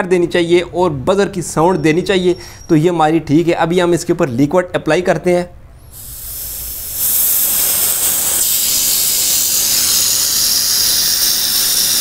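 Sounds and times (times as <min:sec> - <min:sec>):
gas spraying from hose: 0:05.8 - 0:12.0.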